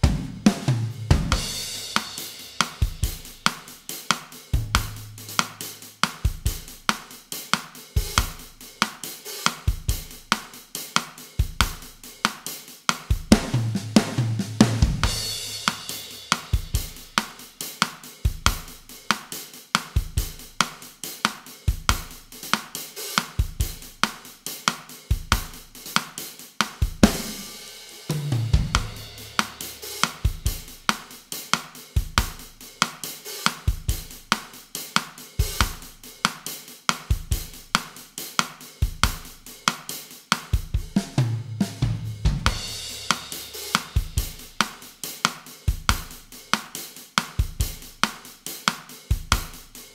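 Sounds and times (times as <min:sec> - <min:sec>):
drum kit bossa nova groove: 0:00.0 - 0:49.9
cymbal crash: 0:04.6 - 0:06.1.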